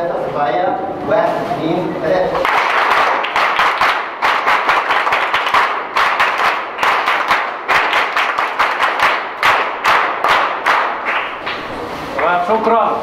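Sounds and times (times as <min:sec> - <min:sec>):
people clapping: 0:02.4 - 0:12.4.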